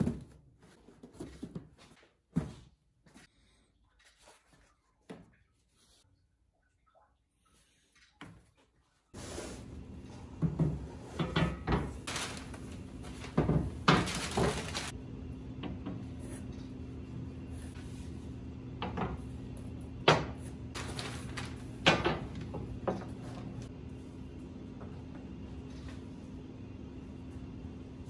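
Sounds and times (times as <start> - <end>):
cardboard and paper rustling: 11.8 - 15.0, 20.8 - 22.4.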